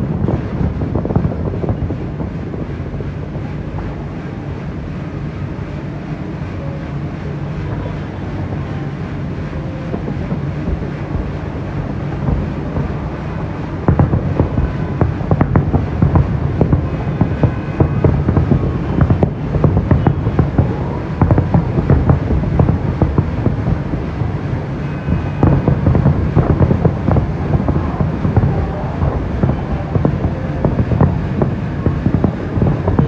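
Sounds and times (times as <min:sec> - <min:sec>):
firework bangs and crackles: 0:00.0 - 0:33.0
low steady rumble: 0:00.0 - 0:33.0
wind buffeting microphone: 0:00.0 - 0:33.0.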